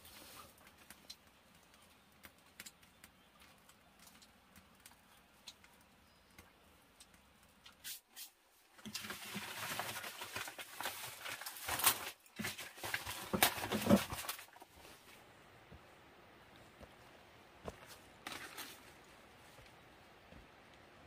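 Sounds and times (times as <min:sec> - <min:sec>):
leaf rustling and crackling: 0:00.0 - 0:15.4, 0:17.6 - 0:20.9.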